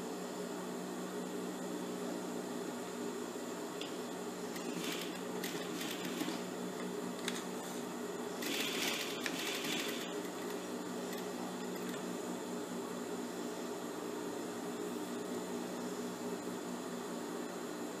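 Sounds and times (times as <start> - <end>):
sewing machine motor humming: 4.5 - 6.5, 8.4 - 12.0
sewing machine stitching: 4.5 - 6.5, 8.4 - 12.0.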